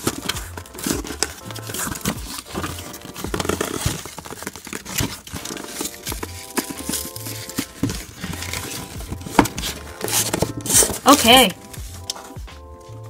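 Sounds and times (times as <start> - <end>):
newspaper crumpling and rustling: 0.0 - 12.4
cardboard scraping: 0.0 - 13.0
background music with bass line: 5.0 - 13.0.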